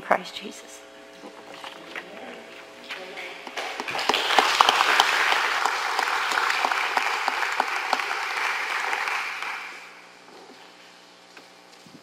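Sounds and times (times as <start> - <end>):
crowd clapping: 3.6 - 10.0.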